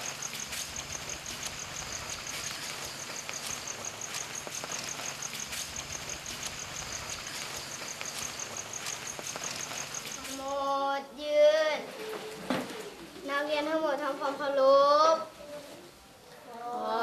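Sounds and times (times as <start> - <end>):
insect chirping: 0.0 - 11.0
soft background hiss: 0.0 - 17.0.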